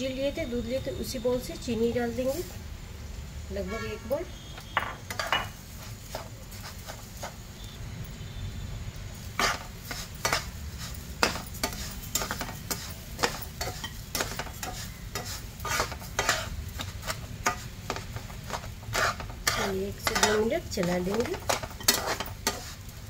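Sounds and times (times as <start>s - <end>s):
spatula scraping pan: 5.1s - 7.4s, 9.3s - 23.0s.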